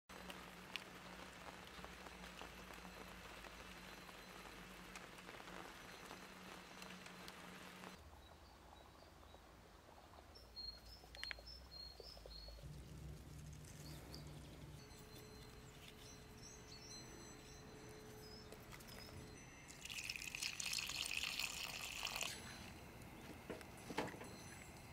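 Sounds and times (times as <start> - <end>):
small birds chirping: 0.1 - 24.9
low steady hum: 11.7 - 24.9.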